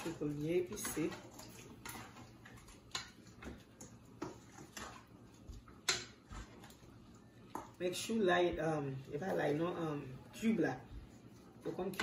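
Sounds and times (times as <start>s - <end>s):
utensils tapping against bowl: 0.0s - 6.5s.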